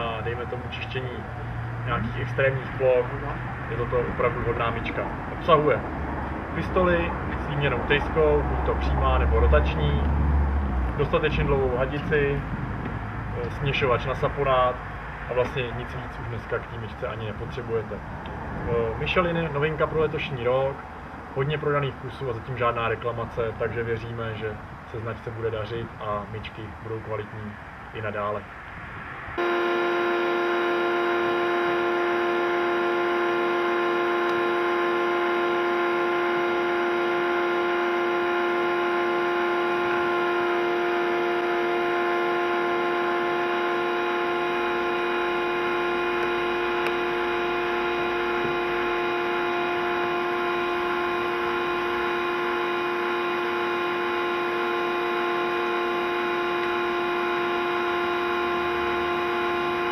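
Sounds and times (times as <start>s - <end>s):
pressure washer humming: 29.4s - 59.9s.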